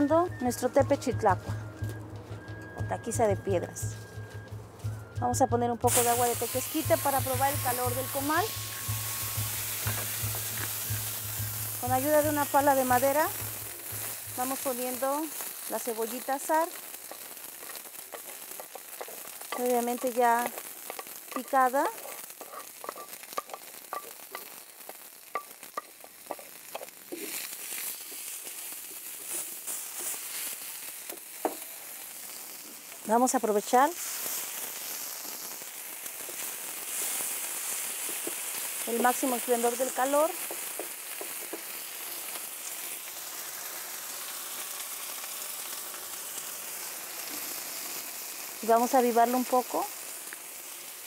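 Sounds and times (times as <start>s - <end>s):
onion sizzling on a griddle: 5.8s - 51.0s
wooden paddle scraping griddle: 17.0s - 24.5s, 25.4s - 30.6s.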